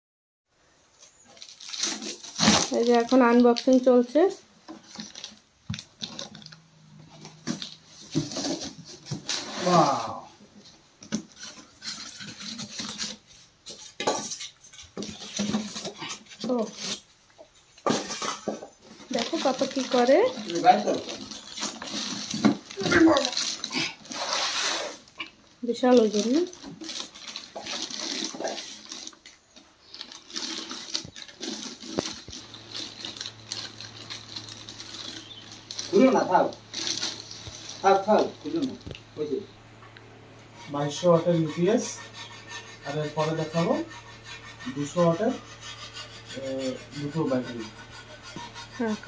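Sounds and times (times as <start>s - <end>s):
plastic wrapping crinkling: 1.0s - 17.1s, 17.8s - 39.4s
cardboard and styrofoam rustling: 1.1s - 39.4s
low steady hum: 25.0s - 49.0s.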